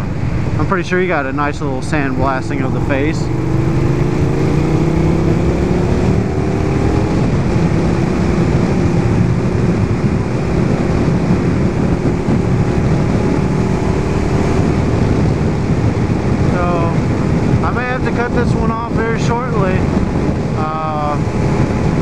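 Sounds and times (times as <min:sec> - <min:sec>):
wind on microphone: 0:00.0 - 0:22.0
motorcycle engine running: 0:00.1 - 0:17.6.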